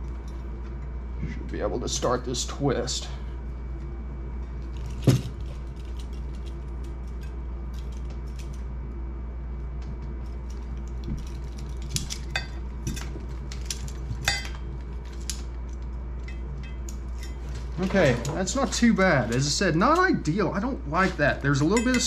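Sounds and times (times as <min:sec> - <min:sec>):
steady low hum: 0:00.0 - 0:22.0
pliers and wire clinking on metal: 0:04.6 - 0:08.7, 0:10.2 - 0:20.2, 0:21.0 - 0:22.0.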